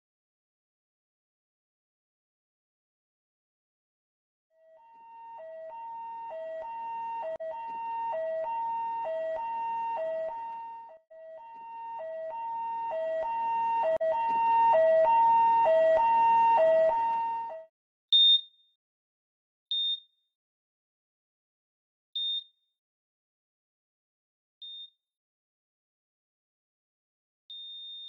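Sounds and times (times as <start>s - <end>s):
two-tone ambulance siren: 4.6s - 17.7s.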